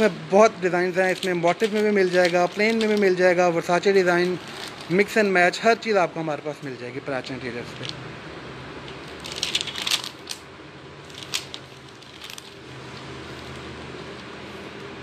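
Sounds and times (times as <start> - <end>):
plastic sheeting crinkling: 1.0 - 5.4, 11.0 - 13.7.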